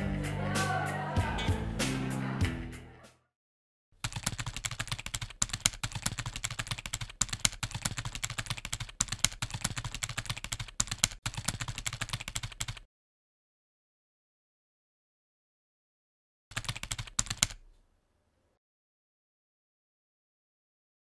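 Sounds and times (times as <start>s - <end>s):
music: 0.0s - 3.3s
typing keystrokes: 4.0s - 12.9s, 16.5s - 17.7s.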